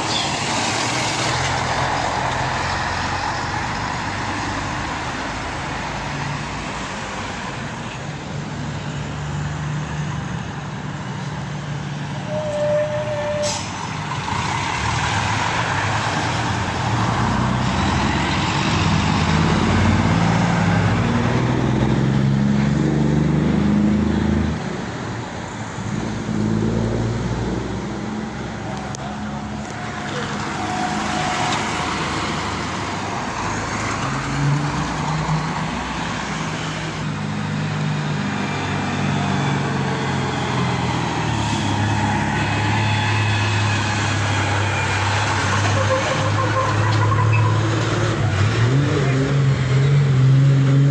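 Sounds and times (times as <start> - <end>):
vehicles driving past: 0.0 - 50.9
truck accelerating close by: 13.4 - 50.9.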